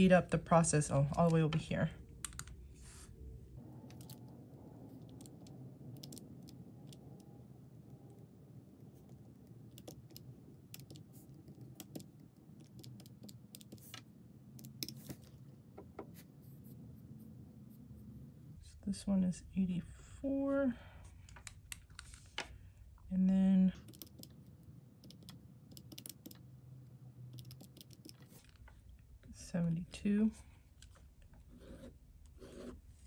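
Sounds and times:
calculator keys clicking: 0:05.0 - 0:07.3, 0:09.0 - 0:14.0, 0:23.8 - 0:24.4, 0:25.0 - 0:26.4, 0:27.4 - 0:28.4.

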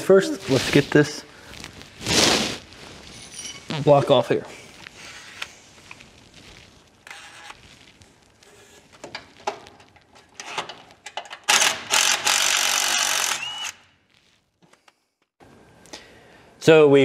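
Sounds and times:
power tool running: 0:11.5 - 0:13.8.

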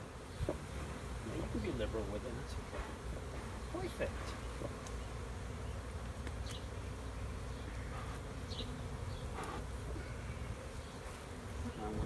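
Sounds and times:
bee flying close past: 0:00.0 - 0:12.0
bees buzzing: 0:00.0 - 0:12.0
bellows puff: 0:09.3 - 0:10.1.

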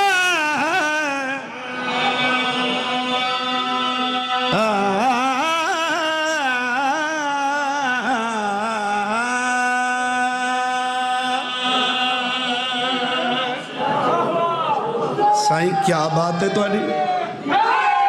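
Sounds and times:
man chanting devotional poem: 0:00.0 - 0:13.8, 0:15.4 - 0:17.1.

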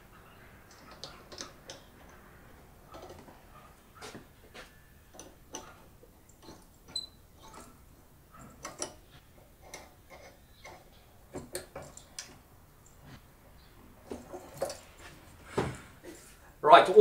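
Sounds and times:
small metallic clicks and taps: 0:00.7 - 0:02.2, 0:05.1 - 0:07.7, 0:08.4 - 0:09.0.

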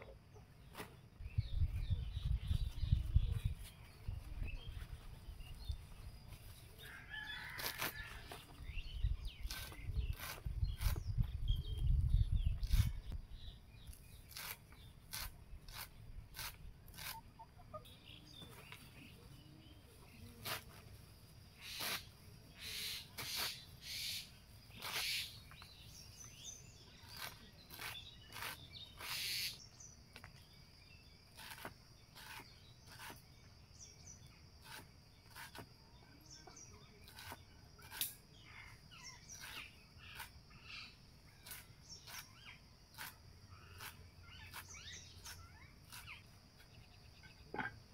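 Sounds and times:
birds chirping: 0:00.0 - 0:47.9
vegetables cut against a blade: 0:09.4 - 0:11.0, 0:14.2 - 0:17.2, 0:26.9 - 0:29.4, 0:31.4 - 0:33.2, 0:37.0 - 0:38.2, 0:41.4 - 0:46.2.

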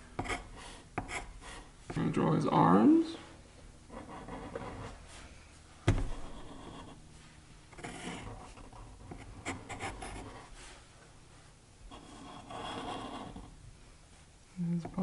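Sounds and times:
marker and pencil drawing on paper: 0:00.2 - 0:01.7, 0:06.0 - 0:07.0, 0:07.8 - 0:10.5, 0:11.9 - 0:13.5.

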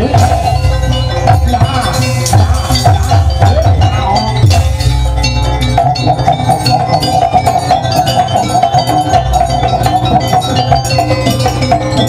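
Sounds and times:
clinking metal percussion: 0:00.0 - 0:12.0
fast drum strokes: 0:00.0 - 0:12.0
wavering high melody: 0:00.0 - 0:12.0.

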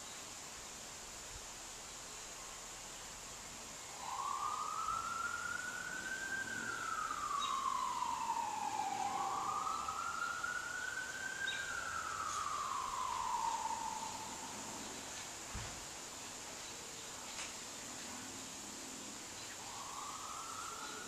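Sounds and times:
emergency vehicle siren wailing: 0:03.9 - 0:15.0, 0:19.6 - 0:21.0.

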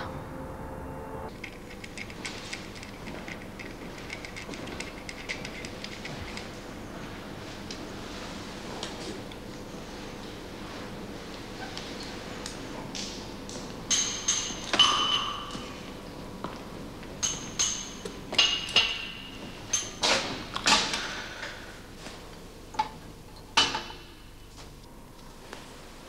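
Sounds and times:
glasses clinking: 0:13.9 - 0:15.6.

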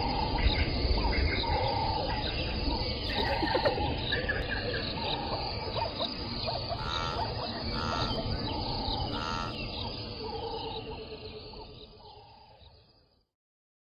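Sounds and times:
birds and small animals chirping: 0:00.0 - 0:13.2
harsh animal call: 0:06.6 - 0:08.4, 0:09.0 - 0:09.6.

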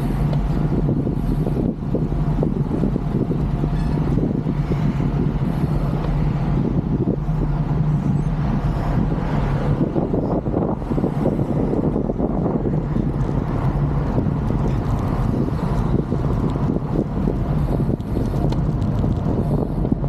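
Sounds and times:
steady low rumble: 0:00.0 - 0:20.0
wind noise on microphone: 0:00.0 - 0:20.0.

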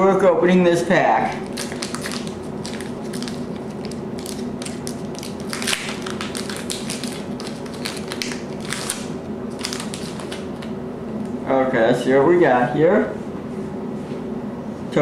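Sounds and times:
cards sliding out of pack: 0:01.4 - 0:10.7
foil wrapper crinkling: 0:01.4 - 0:10.7.

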